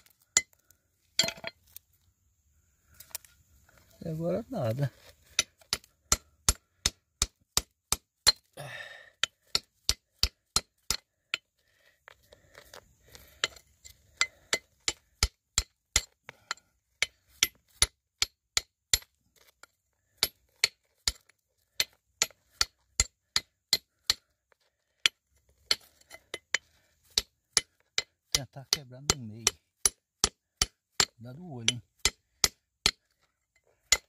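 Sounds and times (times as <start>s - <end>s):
hammer striking rock: 5.2s - 11.5s, 13.4s - 24.3s, 25.0s - 33.2s.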